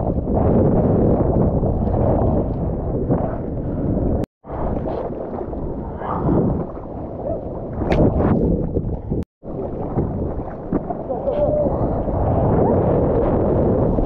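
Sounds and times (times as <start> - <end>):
seawater sloshing and rushing: 0.0 - 14.0
wind buffeting microphone: 0.0 - 14.0.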